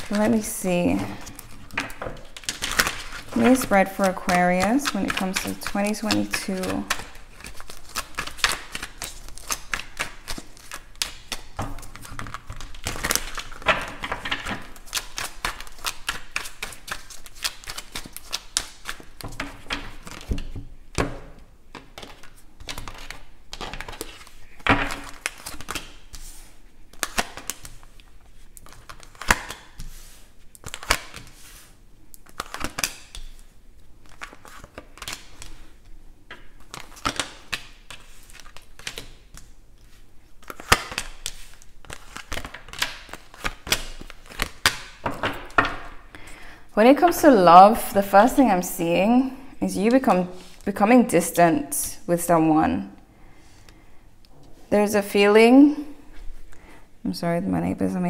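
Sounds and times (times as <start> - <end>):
cards being shuffled: 0.0 - 21.1, 21.7 - 46.3.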